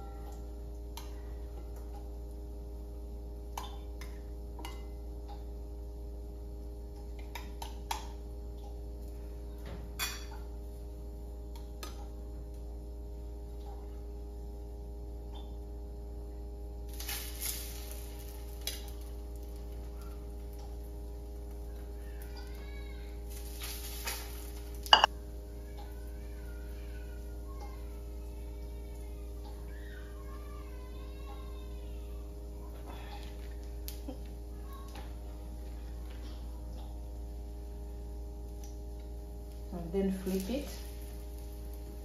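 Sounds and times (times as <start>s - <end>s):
steady low hum: 0.0s - 42.0s.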